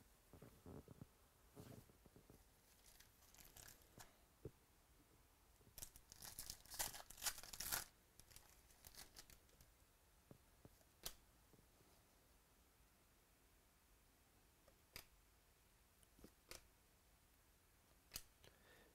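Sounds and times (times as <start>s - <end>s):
light crinkles of packaging: 1.6s - 4.2s, 5.6s - 9.7s
foil wrapper tearing: 5.8s - 9.4s.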